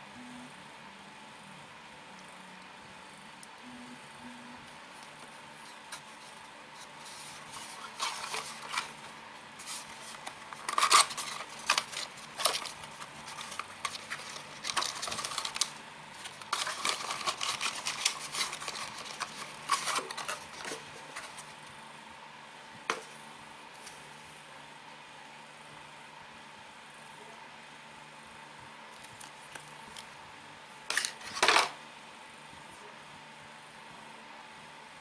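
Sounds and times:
paper leaflet rustling: 5.2 - 21.6.

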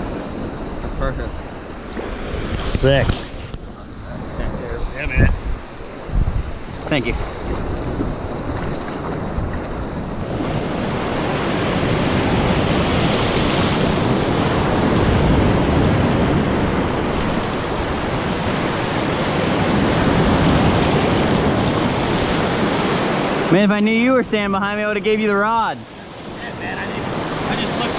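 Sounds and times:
surf washing in shallow water: 0.0 - 27.9.

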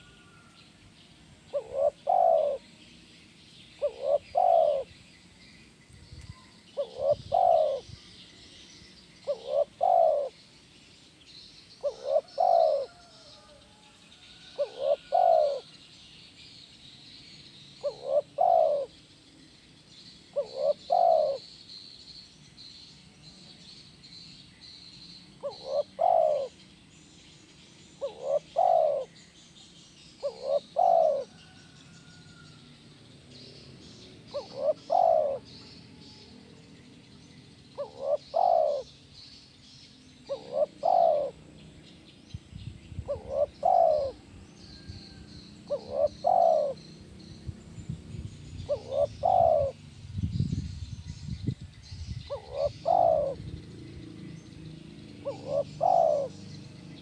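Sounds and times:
dove cooing: 0.0 - 0.5, 1.5 - 2.8, 3.8 - 4.9, 6.3 - 8.1, 9.2 - 10.4, 11.8 - 15.8, 17.8 - 19.0, 20.3 - 21.5, 25.4 - 26.6, 28.0 - 29.2, 30.2 - 32.4, 34.3 - 36.3, 37.8 - 39.0, 40.2 - 41.5, 43.0 - 46.9, 48.6 - 49.8, 52.3 - 53.6, 55.1 - 57.0.

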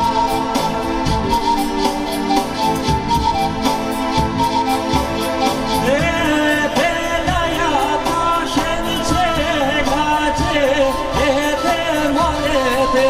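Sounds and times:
amplified accompaniment with low beat: 0.0 - 13.0.

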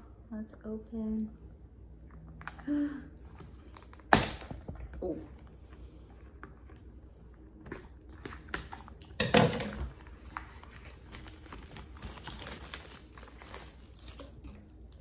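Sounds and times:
paperboard box crinkling: 9.9 - 14.5.

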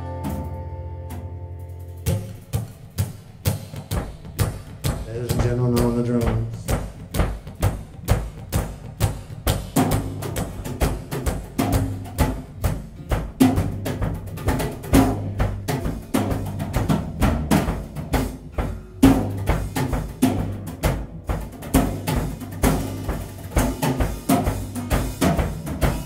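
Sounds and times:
low bass line: 0.0 - 2.7
drum kit steady beat: 0.0 - 26.0.

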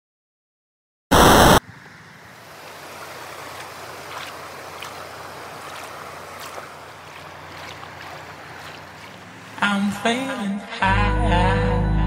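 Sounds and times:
loud burst of noise: 1.1 - 1.6.

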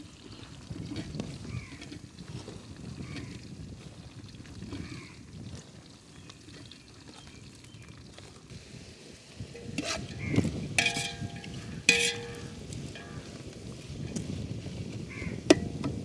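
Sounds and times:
metal ladle stirring in pot: 9.4 - 13.4, 15.5 - 16.0
ladle knocking pot with ring: 9.6 - 13.4, 15.5 - 16.0.

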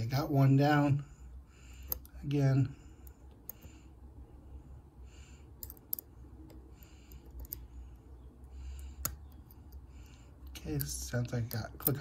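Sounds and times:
lock pick clicks: 5.6 - 7.6, 8.8 - 9.8
lock pick scraping: 5.6 - 7.7, 10.6 - 12.0.

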